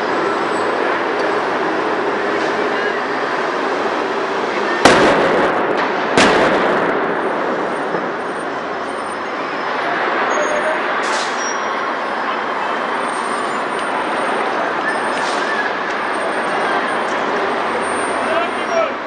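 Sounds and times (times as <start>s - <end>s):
street noise: 0.0s - 19.0s
loud crash bangs: 4.8s - 9.6s.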